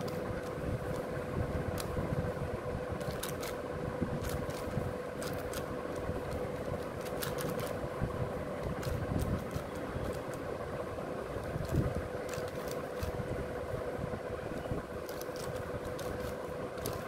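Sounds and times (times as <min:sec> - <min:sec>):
steady low hum: 0:00.0 - 0:17.0
puzzle cube clicking: 0:03.0 - 0:03.6, 0:04.2 - 0:07.8, 0:08.6 - 0:10.4, 0:11.4 - 0:13.2, 0:15.0 - 0:17.0.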